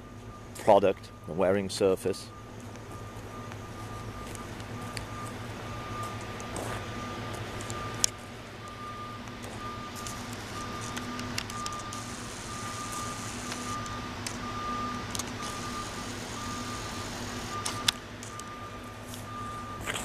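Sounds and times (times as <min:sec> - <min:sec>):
engine running: 0:00.0 - 0:20.0
reversing alarm beeping: 0:00.0 - 0:20.0.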